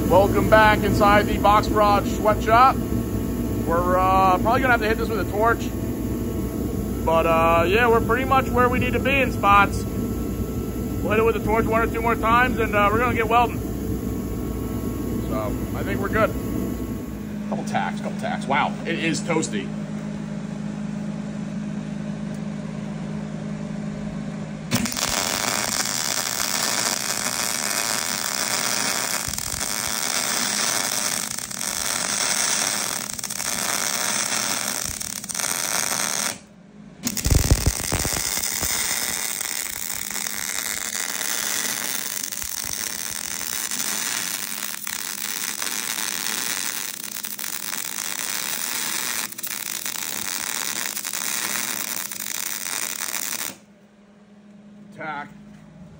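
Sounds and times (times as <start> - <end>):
welding arc crackling: 0.0 - 2.8, 3.6 - 5.6, 7.0 - 9.8, 11.0 - 13.6, 24.7 - 53.6
low steady hum: 0.0 - 55.9.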